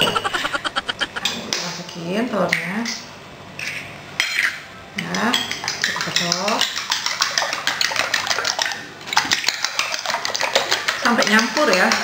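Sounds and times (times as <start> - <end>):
fork whisking eggs in bowl: 5.3 - 8.8.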